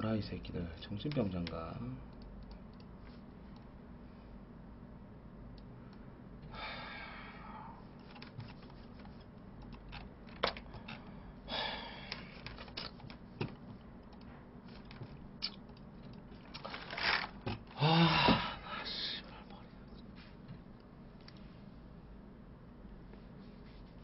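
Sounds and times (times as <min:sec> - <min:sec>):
keyboard and mouse clicks: 0:01.1 - 0:02.9, 0:08.0 - 0:11.1, 0:12.1 - 0:16.6.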